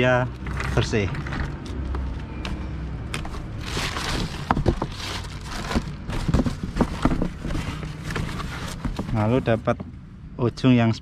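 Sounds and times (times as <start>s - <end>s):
low steady background rumble: 0.0s - 11.0s
plastic packaging rustling: 3.2s - 9.4s.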